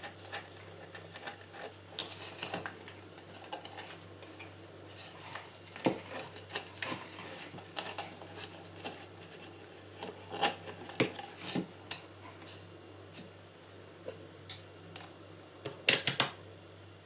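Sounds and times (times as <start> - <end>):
steady low hum: 0.0 - 17.0
plastic parts clicking and knocking: 15.6 - 16.4.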